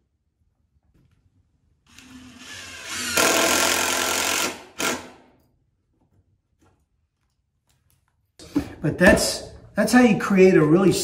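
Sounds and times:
power drill driving screw into wood: 1.9 - 5.3.

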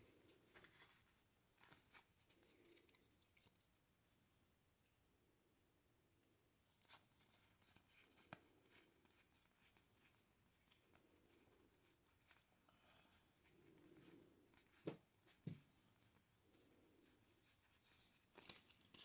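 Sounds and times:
cards rustling and clicking: 0.1 - 3.7, 6.8 - 12.5, 17.5 - 19.0.

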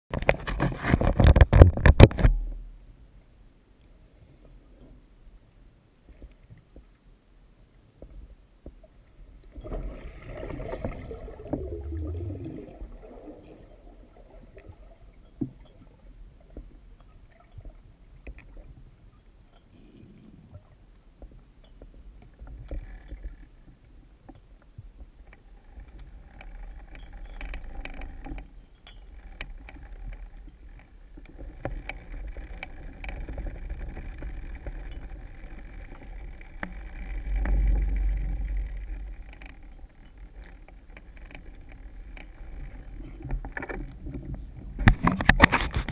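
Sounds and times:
muffled underwater rumble: 7.8 - 28.6, 29.3 - 45.9
clicks and knocks: 43.2 - 45.9.

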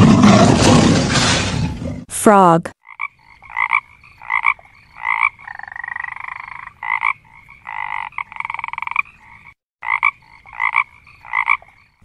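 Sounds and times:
frog croaking: 2.8 - 12.0.

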